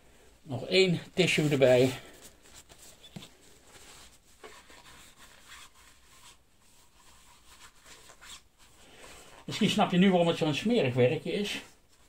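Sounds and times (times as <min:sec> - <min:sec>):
tissue rubbing plastic funnel: 0:00.6 - 0:10.1.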